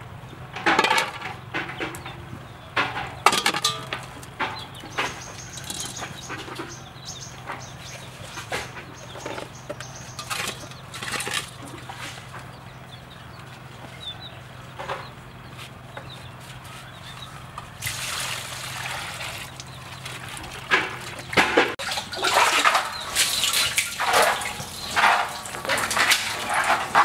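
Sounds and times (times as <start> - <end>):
water pouring from bucket: 17.8 - 21.2, 21.8 - 26.9
bucket splashing into well water: 17.8 - 27.0.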